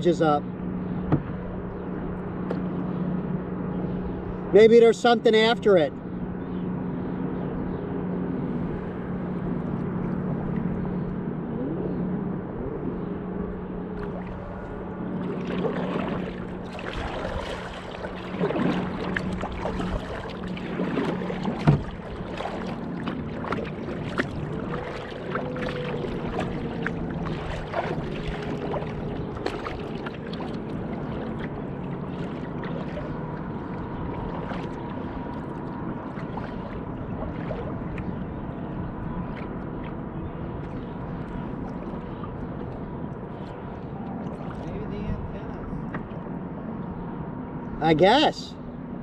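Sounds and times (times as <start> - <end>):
steady low hum: 0.0 - 47.8
water lapping against kayak hull: 7.6 - 47.7
small splashes and drips: 15.2 - 38.3, 39.3 - 44.9.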